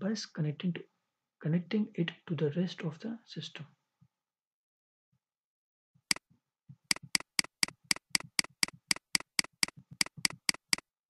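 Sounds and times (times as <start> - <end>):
computer mouse button clicking: 6.9 - 10.8.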